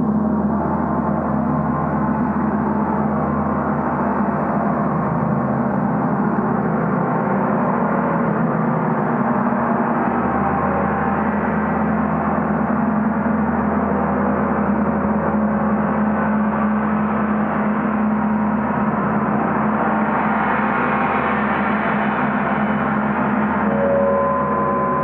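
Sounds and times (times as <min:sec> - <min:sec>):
gong ringing: 0:23.6 - 0:25.0.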